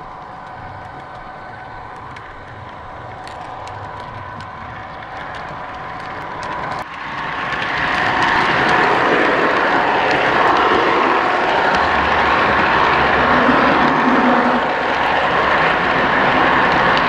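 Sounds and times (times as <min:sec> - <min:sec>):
wheels clicking over rails: 0:00.0 - 0:17.0
loud rushing noise: 0:06.8 - 0:17.0.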